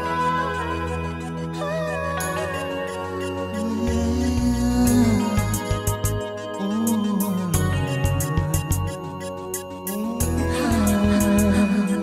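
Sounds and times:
soft instrumental love song: 0:00.0 - 0:12.0.

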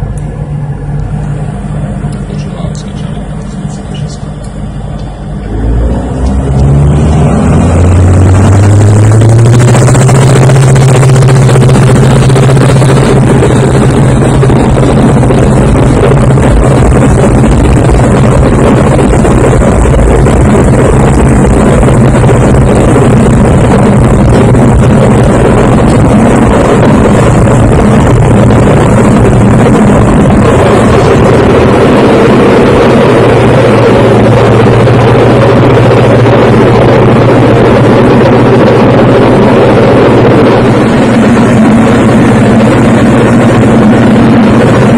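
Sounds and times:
light aircraft engine droning: 0:00.0 - 0:44.9.

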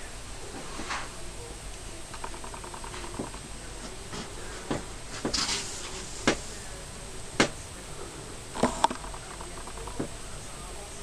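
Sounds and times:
faint steady background hiss: 0:00.0 - 0:11.0
brief hiss: 0:03.6 - 0:06.8.

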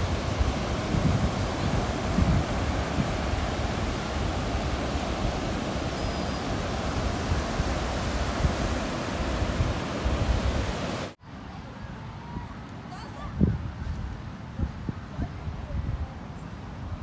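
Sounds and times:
wind buffeting microphone: 0:00.0 - 0:11.1, 0:12.0 - 0:17.0
surf breaking on beach: 0:00.0 - 0:11.2.

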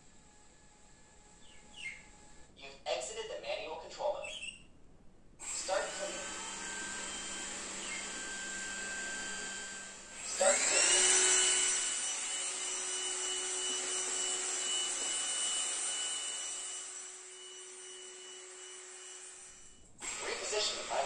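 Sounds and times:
robot vacuum cleaner whine: 0:05.4 - 0:21.0.

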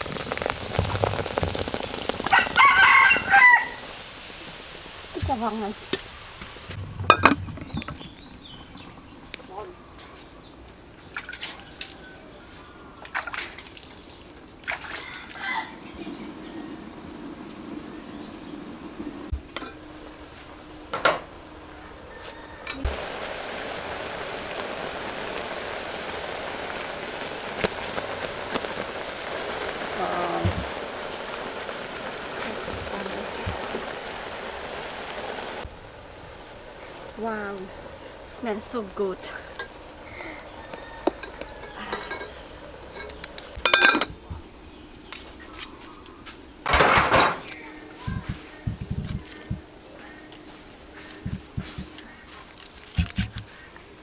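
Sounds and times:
broth simmering in a pot: 0:00.0 - 0:09.4, 0:21.5 - 0:46.7, 0:47.4 - 0:54.0
metal clank: 0:06.9 - 0:07.9
metal utensils clinking on pot: 0:41.1 - 0:44.2.

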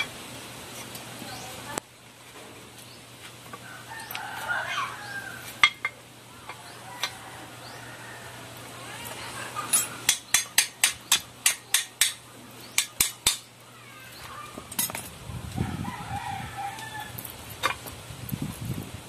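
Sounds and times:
rooster crowing: 0:03.6 - 0:05.6, 0:06.6 - 0:08.7, 0:15.6 - 0:17.3
hammer striking steel: 0:09.8 - 0:12.2, 0:12.8 - 0:13.4.

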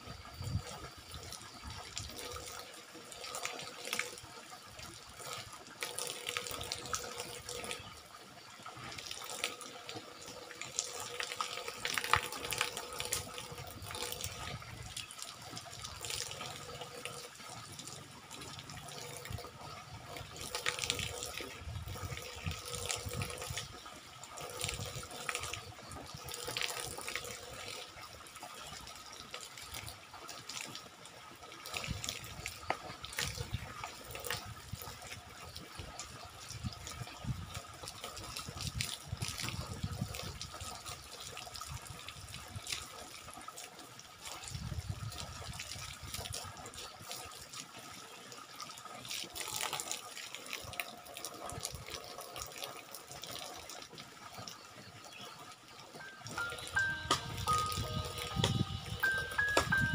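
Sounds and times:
water stream pouring and splashing: 0:00.0 - 0:59.9.

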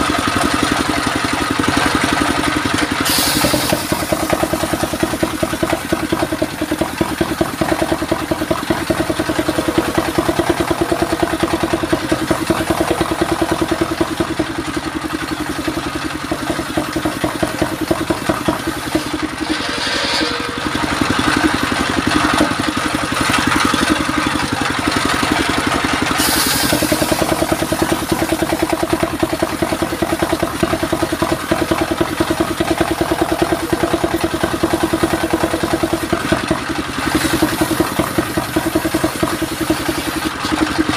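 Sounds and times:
stationary engine running: 0:00.0 - 0:40.9
saw blade cutting wood: 0:03.0 - 0:13.6, 0:16.2 - 0:24.5, 0:26.1 - 0:28.6.

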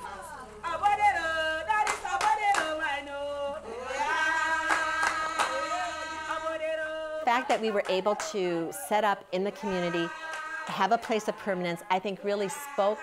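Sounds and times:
group singing long notes: 0:00.0 - 0:13.0
hand claps: 0:01.8 - 0:02.8, 0:04.6 - 0:05.8, 0:07.3 - 0:08.4, 0:10.2 - 0:11.3.

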